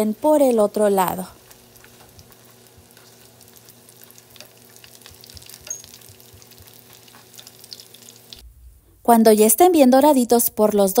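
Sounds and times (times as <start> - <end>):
food sizzling in hot oil: 0.0 - 8.4.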